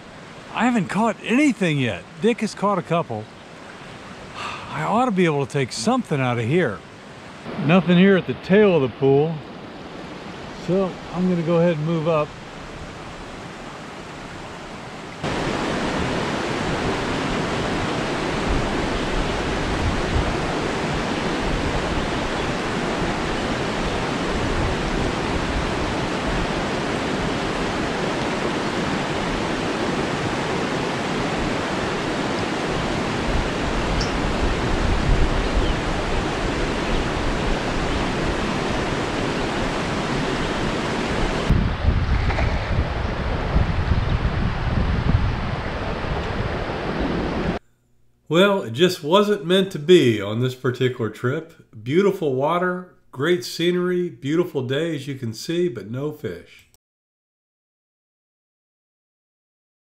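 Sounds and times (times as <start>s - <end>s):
stream rushing over rocks: 0.0s - 43.5s.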